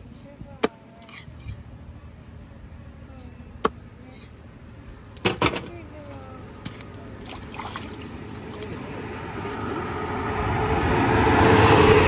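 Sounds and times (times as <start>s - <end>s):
tyre noise on road: 3.7s - 12.0s
vehicle engine approaching: 6.9s - 12.0s.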